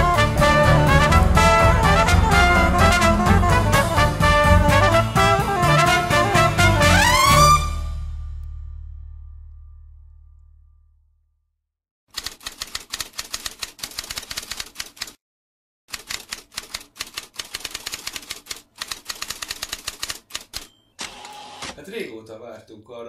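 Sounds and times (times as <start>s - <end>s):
brass music: 0.0s - 9.6s
typewriter keys typing: 12.1s - 15.2s, 15.9s - 21.2s.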